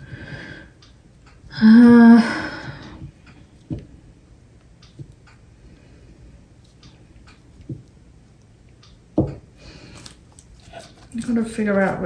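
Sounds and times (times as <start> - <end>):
woman humming: 1.5 - 3.0.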